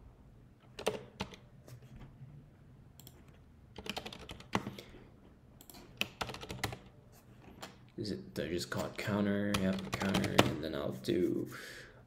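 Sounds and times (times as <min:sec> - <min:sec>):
computer keyboard typing: 0:00.8 - 0:01.4, 0:03.0 - 0:04.8, 0:05.6 - 0:06.9, 0:09.5 - 0:10.6.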